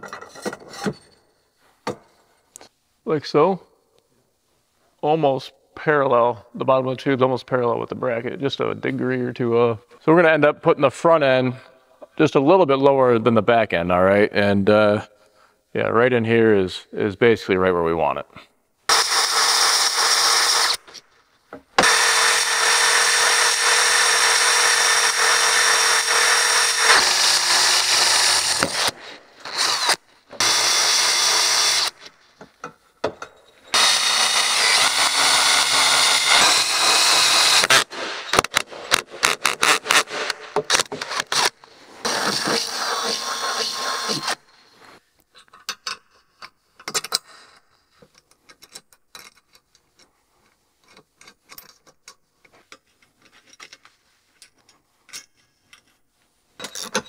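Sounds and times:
short drill trigger bursts: 18.9s - 20.8s, 21.8s - 32.1s, 33.7s - 38.5s, 41.1s - 44.4s
drill grinding through metal: 18.9s - 21.0s, 21.8s - 32.1s, 33.7s - 44.4s
nuts and bolts clicking: 45.4s - 47.3s, 48.1s - 56.0s.

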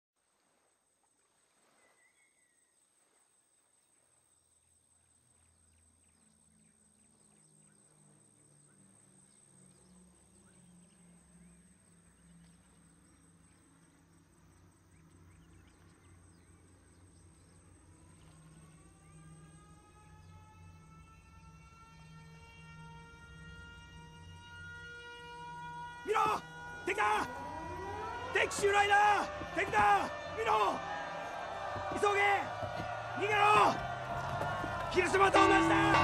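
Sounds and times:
insects: 0.2s - 27.5s
distant propeller bombers droning: 5.8s - 36.0s
rising siren wail: 18.0s - 36.0s.

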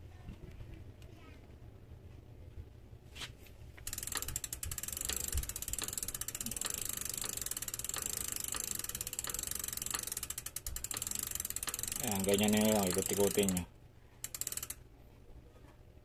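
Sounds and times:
bicycle freehub clicking: 3.8s - 14.8s.

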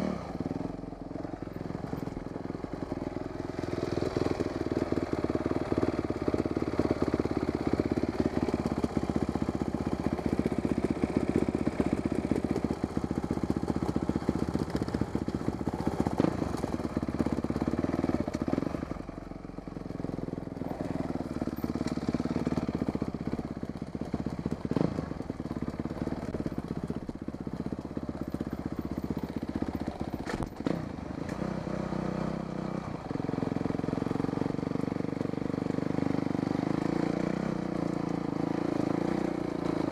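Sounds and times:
dirt bike engine: 0.0s - 39.9s
bike knocking over rough ground: 30.2s - 30.7s.

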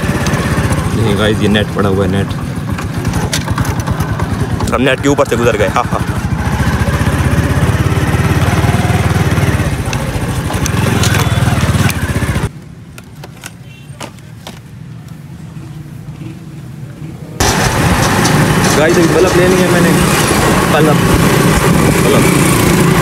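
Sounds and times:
motorcycle engine running: 0.0s - 12.5s, 17.4s - 23.0s.

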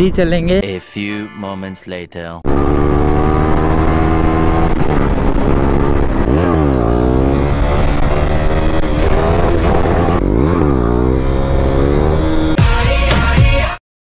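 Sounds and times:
motorcycle engine revving: 2.4s - 12.6s.

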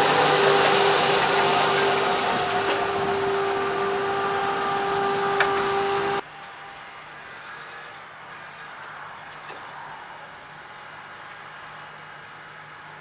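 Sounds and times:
tractor engine running: 0.0s - 6.2s
fertiliser spreader whine: 0.0s - 6.5s.

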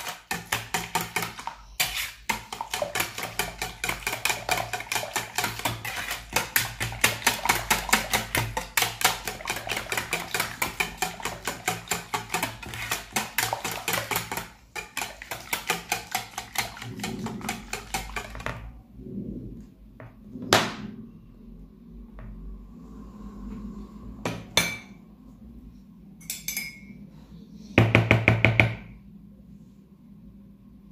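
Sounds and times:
whisk beating in plastic bowl: 0.0s - 18.7s.

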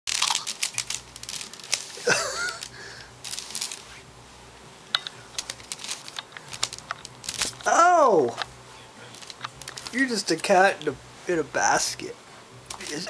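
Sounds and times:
wicker basket creaking: 0.1s - 4.0s, 5.3s - 8.4s, 9.1s - 10.2s, 12.7s - 13.0s.

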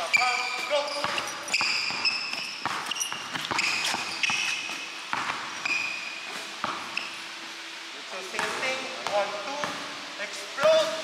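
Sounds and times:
basketball bouncing on wooden floor: 0.0s - 6.0s, 6.6s - 7.1s, 8.3s - 9.9s
sneakers squeaking on hardwood: 0.0s - 7.4s.

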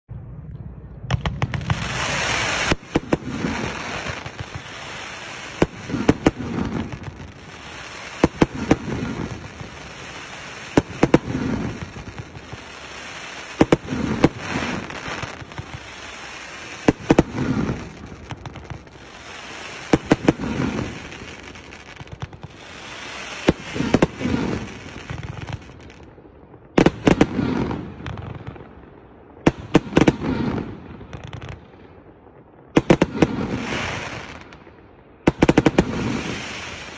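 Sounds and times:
fireworks shots: 0.1s - 36.9s
hissing of fireworks shooting up: 1.2s - 26.1s, 32.8s - 34.6s, 35.3s - 36.9s.

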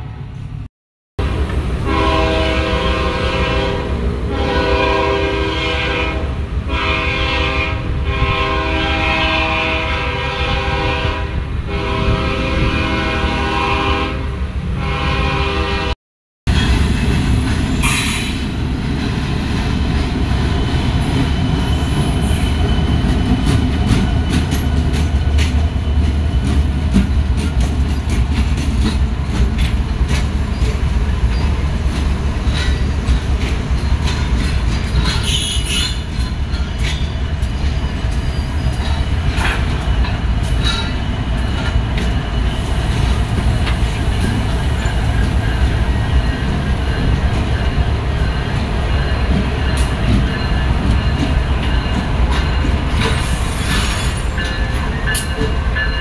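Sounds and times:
locomotive air horn blasts: 1.8s - 16.0s, 35.2s - 36.0s
wheels clicking over rail joints: 21.0s - 42.4s.

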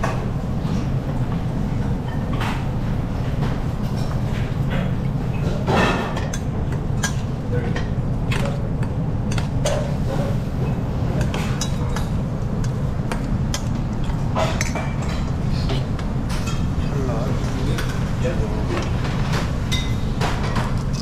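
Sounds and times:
kitchen background rumble: 0.0s - 21.0s
metal utensils clinking on pans: 3.9s - 10.4s, 11.2s - 12.8s, 13.5s - 15.4s, 18.7s - 21.0s.

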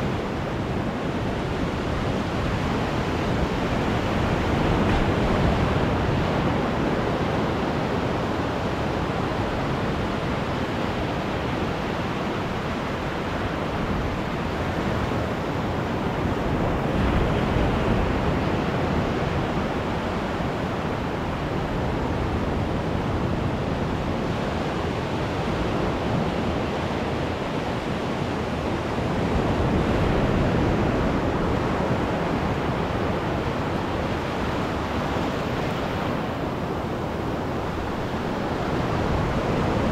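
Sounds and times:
surf washing up a beach: 0.0s - 39.9s.

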